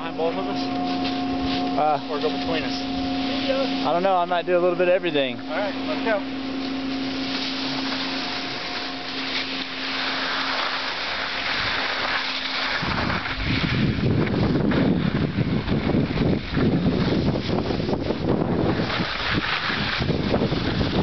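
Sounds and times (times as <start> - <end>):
wind buffeting microphone: 0.0 - 21.0
skis hissing over snow: 7.1 - 15.2, 16.9 - 21.0.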